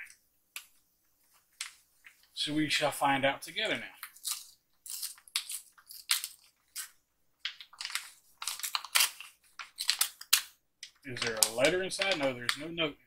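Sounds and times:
packaging crinkling: 4.0s - 12.6s.

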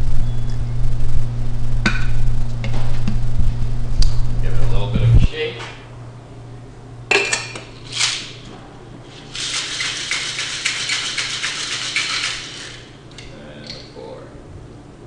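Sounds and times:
ice rattling in cocktail shaker: 9.3s - 12.8s.

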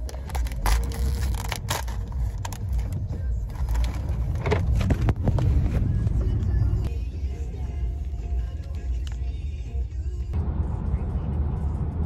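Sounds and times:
snack bag crinkling: 0.0s - 4.2s
low car rumble: 0.0s - 12.0s.

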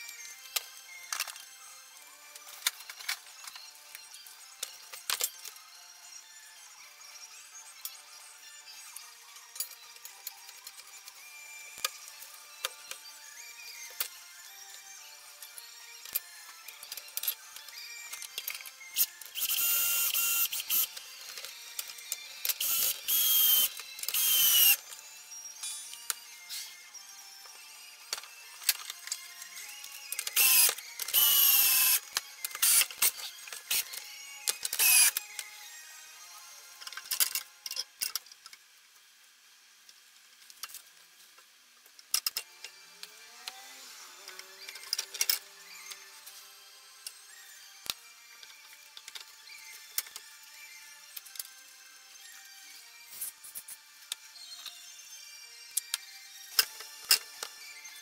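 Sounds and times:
power tool motor whining: 16.6s - 25.6s, 26.4s - 37.6s, 42.4s - 47.9s.

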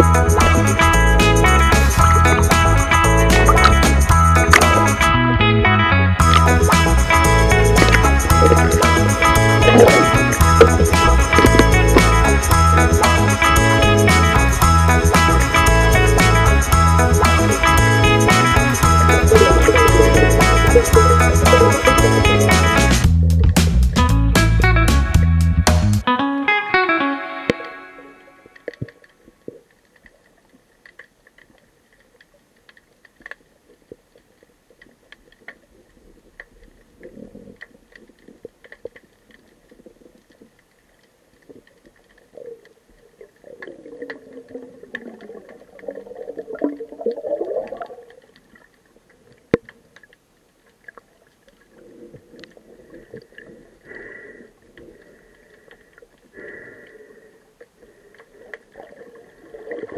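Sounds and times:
underwater clicks and crackles: 0.0s - 5.1s, 6.2s - 24.0s, 28.4s - 59.9s
low bubbling gurgles: 0.0s - 5.3s, 6.2s - 14.4s, 16.8s - 23.6s, 41.5s - 50.1s.

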